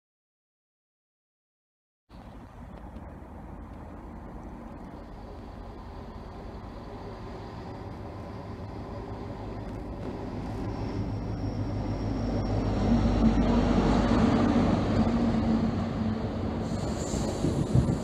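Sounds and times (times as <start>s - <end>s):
train diesel engine: 2.1s - 18.0s
train wheels on rails: 2.2s - 18.0s.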